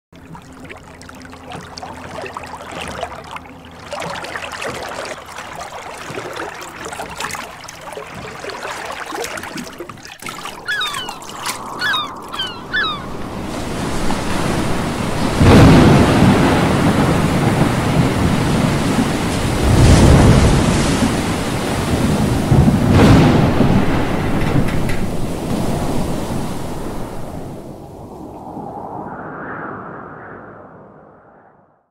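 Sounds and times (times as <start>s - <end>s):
wind: 0.1s - 31.7s
soft sea ambience: 0.1s - 31.8s
seagull calling: 7.8s - 14.2s
storm surf: 10.4s - 31.6s.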